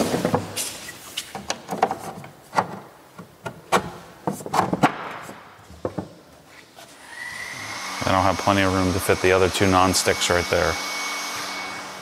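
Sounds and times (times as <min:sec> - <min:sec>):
wooden knocks and clicks: 0:01.4 - 0:06.2.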